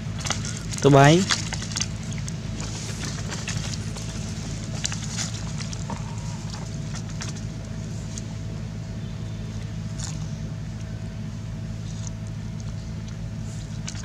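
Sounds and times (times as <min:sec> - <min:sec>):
motor humming: 0:00.0 - 0:14.0
rustling: 0:00.2 - 0:08.4.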